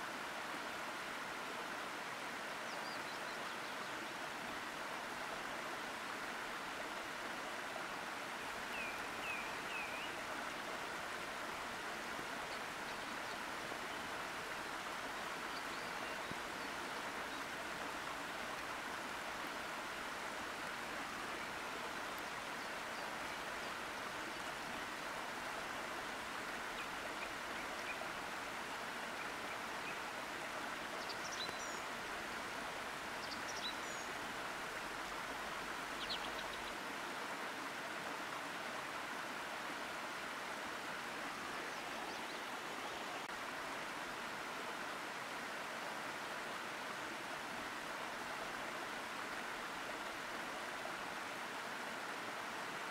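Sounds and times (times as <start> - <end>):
waterfall rushing into pool: 0.0 - 52.9.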